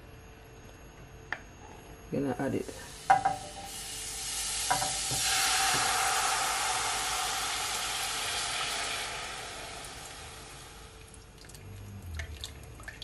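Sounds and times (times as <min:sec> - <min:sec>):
sauce sizzling in a frying pan: 0:02.8 - 0:11.0.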